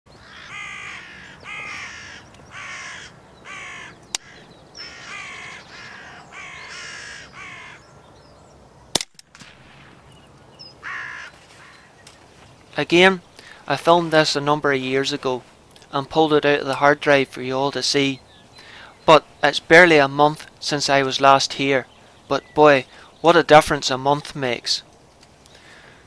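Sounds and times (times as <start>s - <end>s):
crows cawing: 0.1s - 7.9s, 10.7s - 12.2s, 25.5s - 26.0s
sharp crack: 8.9s - 10.5s.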